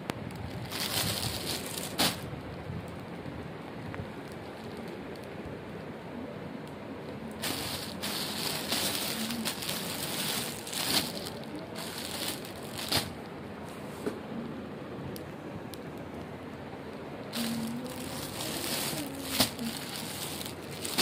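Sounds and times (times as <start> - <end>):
steady background hiss: 0.0 - 21.0
plastic packaging crinkling: 0.4 - 2.2, 7.4 - 13.2, 17.3 - 21.0.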